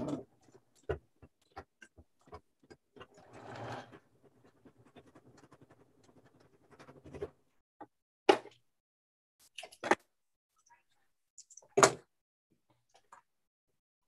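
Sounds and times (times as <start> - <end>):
sewing machine stitching fabric: 3.0 - 4.1.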